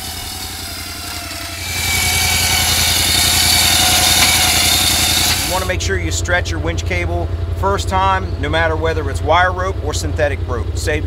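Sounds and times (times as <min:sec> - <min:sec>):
electric winch whining: 0:00.0 - 0:05.8
engine idling: 0:00.0 - 0:11.0.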